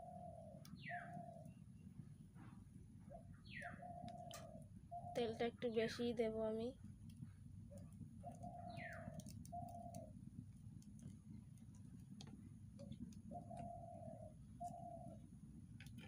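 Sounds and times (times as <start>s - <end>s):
dove cooing: 0.0s - 1.5s, 3.1s - 5.3s, 8.2s - 10.2s, 13.2s - 15.2s
bird rising chirp: 0.0s - 1.8s, 3.1s - 5.4s, 13.3s - 15.3s
low steady rumble: 0.0s - 16.0s.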